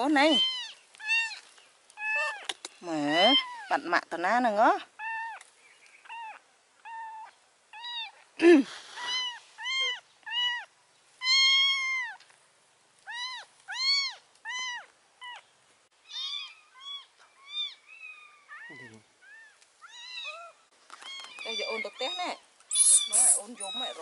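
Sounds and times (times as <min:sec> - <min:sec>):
kitten meowing: 0:00.3 - 0:01.4, 0:09.1 - 0:12.2, 0:16.1 - 0:24.0.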